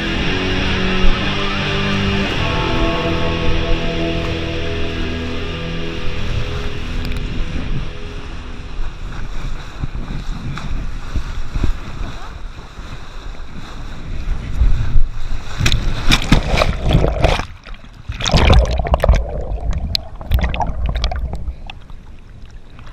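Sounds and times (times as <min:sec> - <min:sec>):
wind rumbling on microphone: 0:00.0 - 0:22.9
heavy water splashing: 0:13.8 - 0:22.9
gentle water sloshing: 0:15.6 - 0:22.9
water rushing and spraying: 0:15.6 - 0:22.9.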